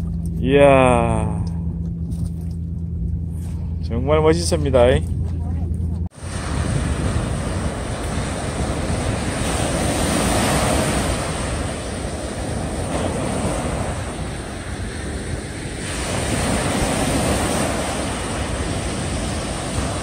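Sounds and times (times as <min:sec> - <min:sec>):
waves washing up beach: 0:06.1 - 0:20.0
wind on microphone: 0:06.1 - 0:20.0.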